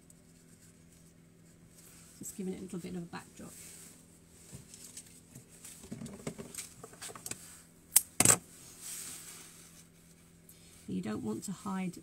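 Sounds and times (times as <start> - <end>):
rustling leaves and stems: 0.2 - 7.6.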